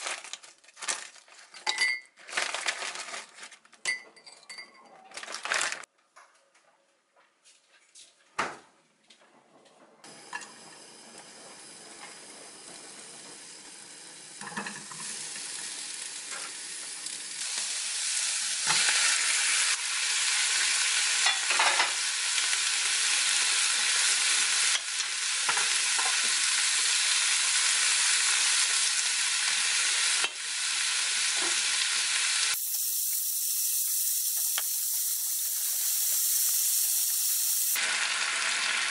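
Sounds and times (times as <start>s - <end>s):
food sizzling in a pan: 10.1s - 38.9s.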